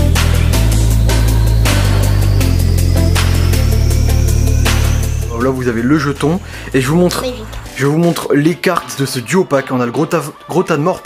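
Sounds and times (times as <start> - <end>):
electronic music with heavy bass: 0.0 - 8.2.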